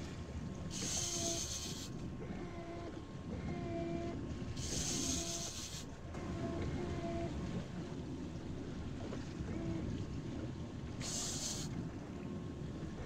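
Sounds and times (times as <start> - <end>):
low rumble of boat and water: 0.0 - 13.0
fishing reel whining: 0.7 - 1.9, 4.6 - 5.8, 11.0 - 11.7
high hissing bursts: 0.8 - 1.9, 11.0 - 11.7.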